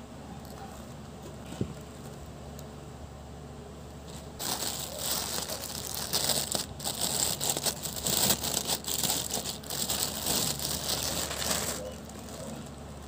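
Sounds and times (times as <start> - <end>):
plastic packaging crinkling: 4.1 - 13.0.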